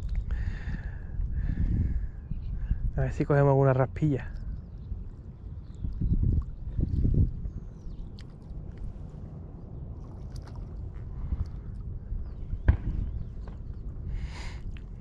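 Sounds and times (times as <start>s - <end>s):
low rumble: 3.7s - 15.0s
water lapping and sloshing: 7.6s - 12.3s.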